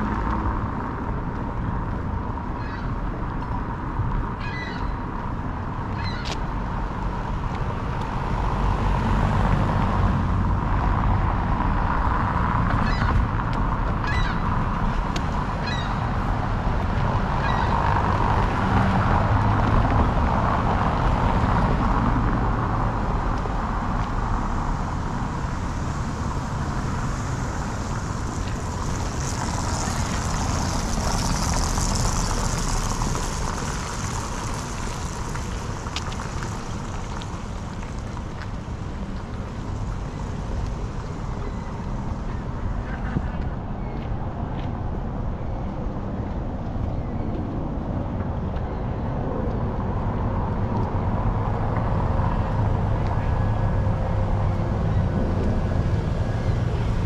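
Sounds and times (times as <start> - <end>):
cars on cobblestones rumbling: 0.0 - 57.0
bird calls: 4.4 - 5.0, 15.6 - 16.0
car passing close hiss: 26.0 - 38.9.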